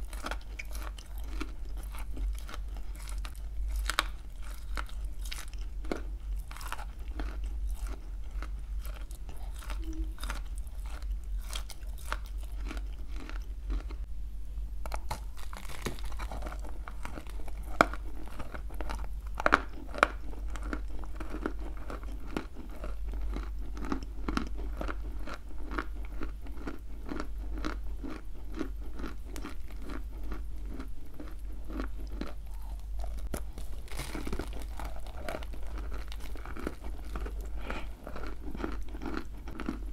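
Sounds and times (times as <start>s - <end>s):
crunchy chewing: 0.0s - 14.1s, 14.9s - 39.9s
low hum: 0.0s - 24.3s.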